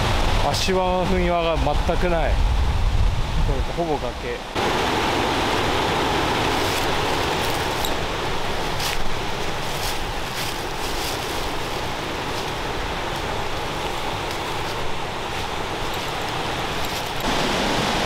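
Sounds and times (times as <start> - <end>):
mountain stream and waterfall rushing: 0.0 - 2.4, 3.2 - 18.0
boots crunching dry leaves: 6.1 - 17.4.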